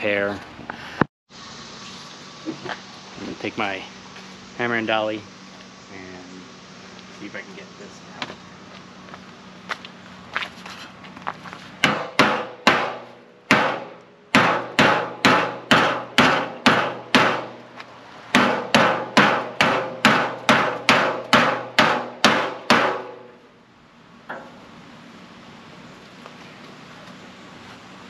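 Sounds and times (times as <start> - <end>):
hammer striking sheet metal: 11.8 - 17.6, 18.3 - 23.4.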